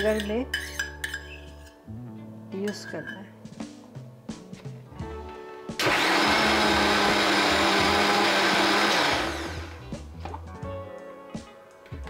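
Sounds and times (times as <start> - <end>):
mixer grinder blending: 5.8 - 9.8.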